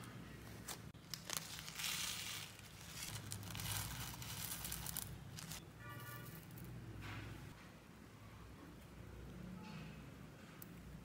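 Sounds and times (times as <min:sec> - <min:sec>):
sequins rustling: 0:00.9 - 0:06.8
plastic bag crinkling: 0:01.0 - 0:05.6.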